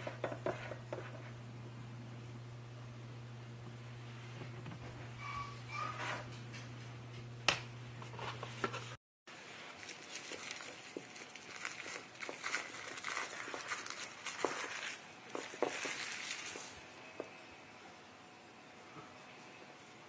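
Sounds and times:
low steady hum: 0:00.0 - 0:20.0
cling film crinkling: 0:09.4 - 0:16.8
stirring in a bowl: 0:09.8 - 0:17.4.

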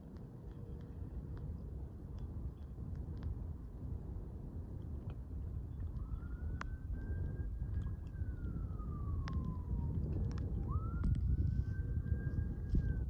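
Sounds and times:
low wind rumble: 0:00.0 - 0:13.0
distant siren wailing: 0:05.7 - 0:13.0.

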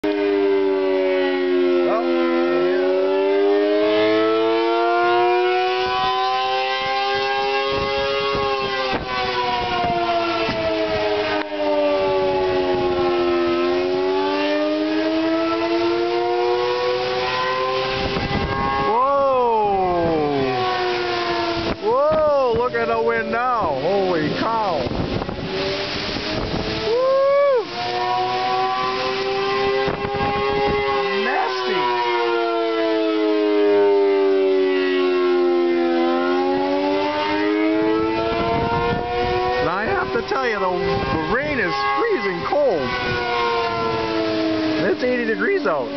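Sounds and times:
warning siren falling and rising: 0:00.0 - 0:45.9
wind: 0:00.0 - 0:45.9
wind and rain hiss: 0:17.9 - 0:32.0, 0:38.5 - 0:45.9.

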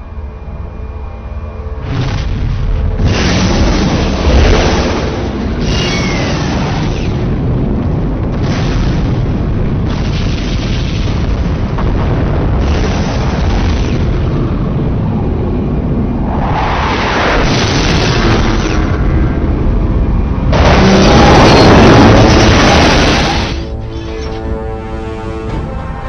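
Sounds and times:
heavy low rumble: 0:00.0 - 0:26.0
cinematic booms: 0:01.8 - 0:24.0
rushing whooshes: 0:14.6 - 0:23.9.

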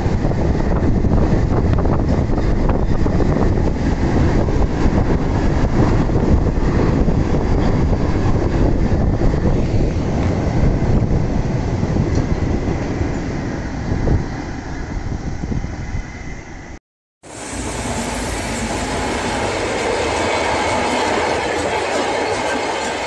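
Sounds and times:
freight train rumbling past: 0:00.0 - 0:23.0.

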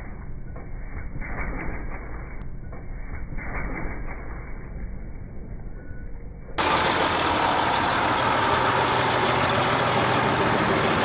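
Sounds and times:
train rolling on rails: 0:06.6 - 0:11.0.

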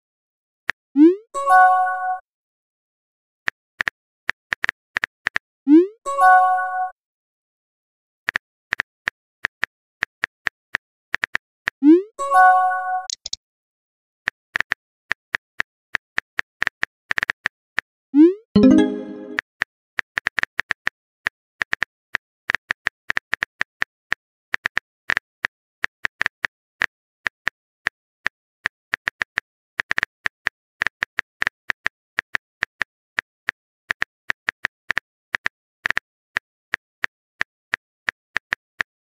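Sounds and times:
phone keyboard key clicks: 0:13.1 - 0:13.4.

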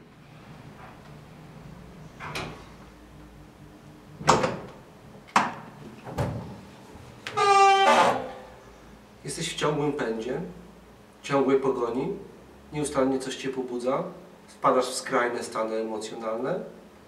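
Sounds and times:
door squeak: 0:07.3 - 0:08.5.

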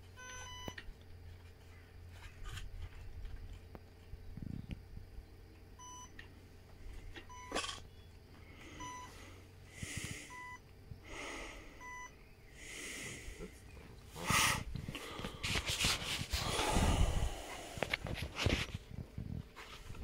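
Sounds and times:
soft breath-like hisses: 0:08.6 - 0:10.4, 0:12.5 - 0:18.0.

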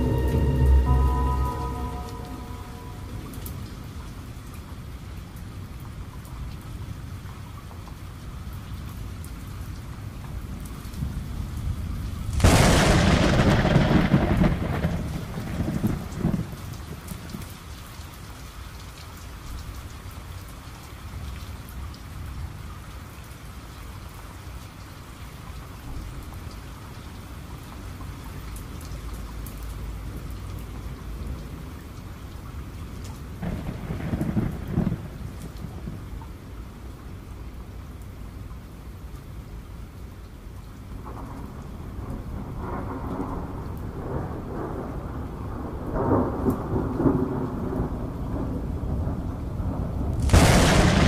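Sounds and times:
thunderclap rumbling: 0:00.0 - 0:04.2, 0:11.8 - 0:17.0, 0:33.4 - 0:36.2, 0:41.0 - 0:51.0
steady rain: 0:00.0 - 0:51.0.

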